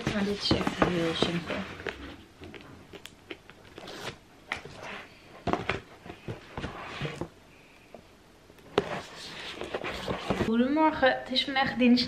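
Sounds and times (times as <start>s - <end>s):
cardboard rustling: 0.0s - 2.7s, 3.5s - 7.4s, 8.7s - 10.5s.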